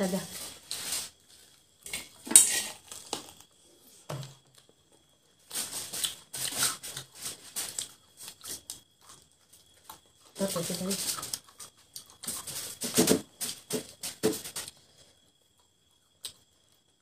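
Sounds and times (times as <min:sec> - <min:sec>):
chewing: 0:05.9 - 0:10.4, 0:11.0 - 0:12.8.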